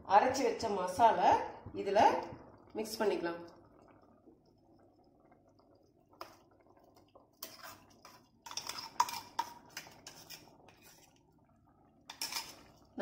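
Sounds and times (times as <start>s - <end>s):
metal jar clinking and scraping: 7.4s - 11.0s, 12.1s - 12.7s.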